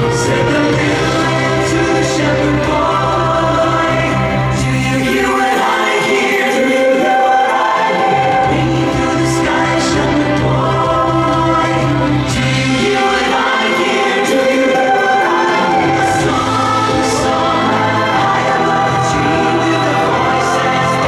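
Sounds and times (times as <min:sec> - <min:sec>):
choir singing: 0:00.0 - 0:21.0.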